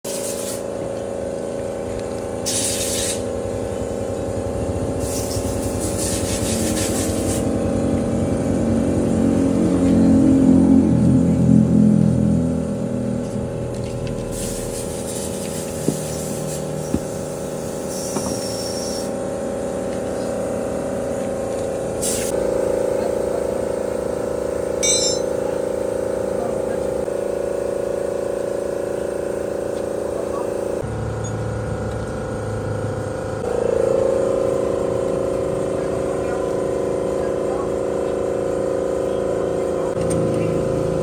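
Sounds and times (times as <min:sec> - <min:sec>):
short metallic clinks: 0:24.8 - 0:25.4.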